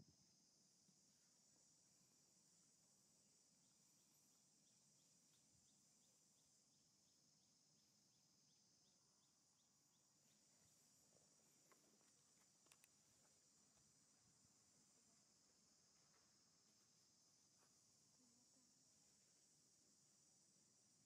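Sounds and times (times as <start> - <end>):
faint chirps: 0.0 - 21.0
high insect drone: 0.0 - 21.0.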